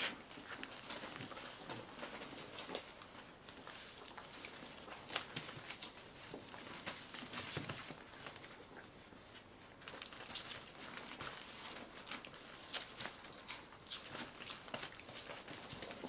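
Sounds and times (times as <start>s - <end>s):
dog snuffling and licking: 0.0s - 16.0s
paper rustling: 0.0s - 16.0s.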